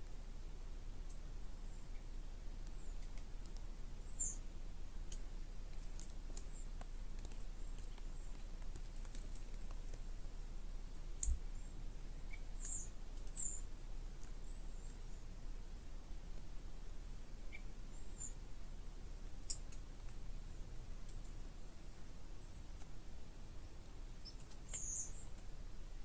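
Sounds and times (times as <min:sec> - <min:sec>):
low steady rumble: 0:00.0 - 0:26.0
light ticks and clicks: 0:01.9 - 0:03.7, 0:05.0 - 0:10.1, 0:11.2 - 0:11.4, 0:19.4 - 0:23.0, 0:23.8 - 0:25.5
high bird chirps: 0:04.1 - 0:04.4, 0:12.3 - 0:13.7, 0:24.2 - 0:25.3.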